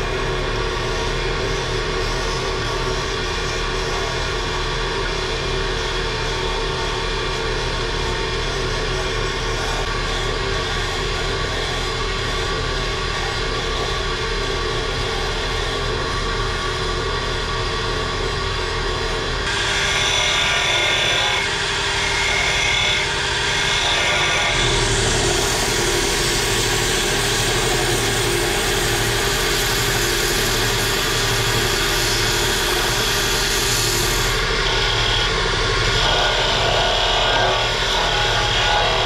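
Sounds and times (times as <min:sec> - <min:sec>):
chisel cutting spinning wood: 0:17.8 - 0:39.0
wood lathe running: 0:19.4 - 0:39.0
sandpaper on spinning wood: 0:19.5 - 0:34.5.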